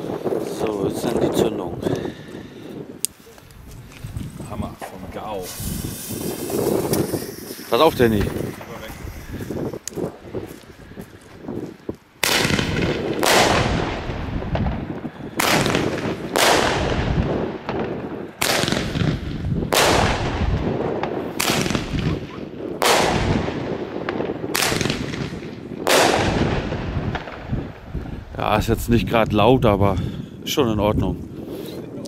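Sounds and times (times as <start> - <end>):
firework bangs: 5.0 - 10.5, 12.2 - 28.7.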